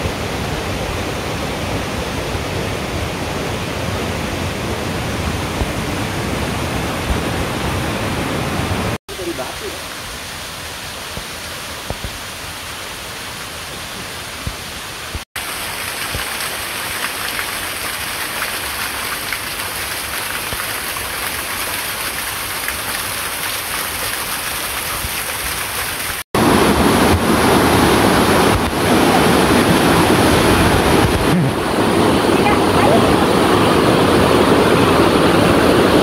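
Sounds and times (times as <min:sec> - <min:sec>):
small waterfall splashing: 0:00.0 - 0:36.0
whitewater stream over boulders: 0:00.0 - 0:36.0.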